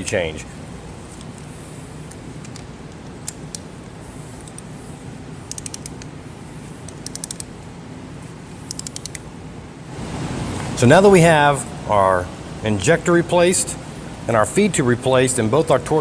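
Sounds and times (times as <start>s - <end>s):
steady low hum: 0.0s - 16.0s
ratchet wrench clicking: 5.5s - 6.1s, 6.9s - 7.5s, 8.7s - 9.2s.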